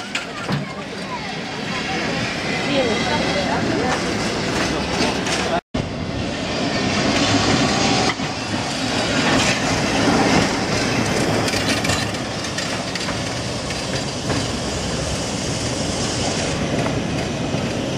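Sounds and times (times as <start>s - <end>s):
tram wheels rumbling and clacking: 0.0s - 17.9s.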